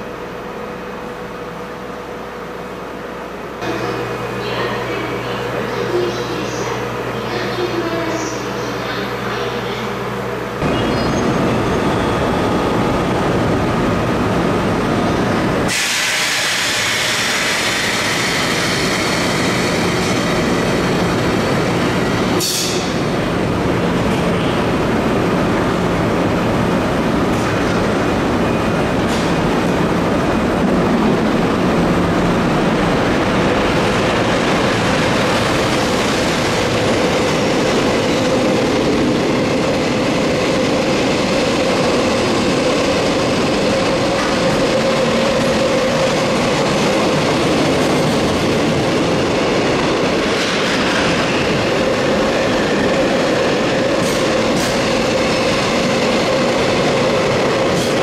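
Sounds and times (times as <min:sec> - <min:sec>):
loud air hiss: 0:15.7 - 0:19.3, 0:22.4 - 0:23.0.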